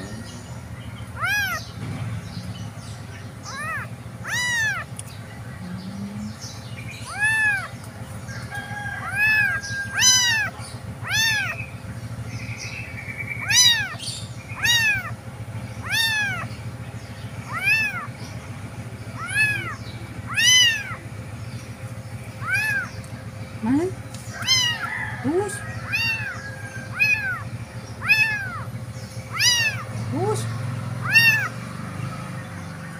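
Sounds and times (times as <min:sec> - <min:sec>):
kitten meowing: 0:01.1 - 0:01.7, 0:03.4 - 0:04.9, 0:07.0 - 0:07.7, 0:09.0 - 0:11.6, 0:13.4 - 0:14.0, 0:14.6 - 0:15.2, 0:15.8 - 0:16.5, 0:17.5 - 0:18.1, 0:19.2 - 0:21.0, 0:22.4 - 0:22.9, 0:24.3 - 0:24.9, 0:25.8 - 0:28.7, 0:29.3 - 0:30.3, 0:31.0 - 0:31.6.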